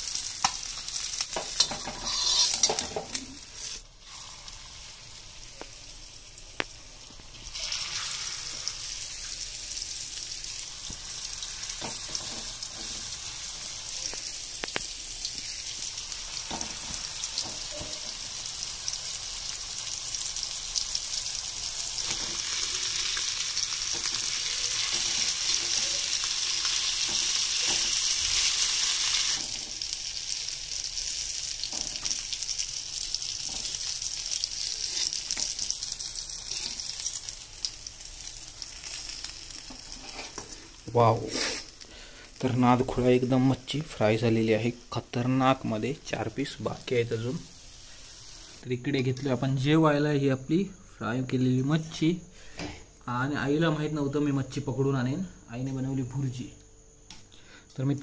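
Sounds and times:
fish sizzling in oil: 0:00.0 - 0:43.2, 0:46.1 - 0:48.6.

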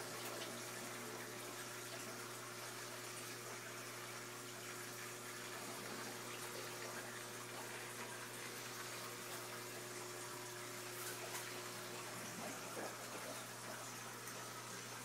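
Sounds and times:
aquarium water rushing: 0:00.0 - 0:15.0.

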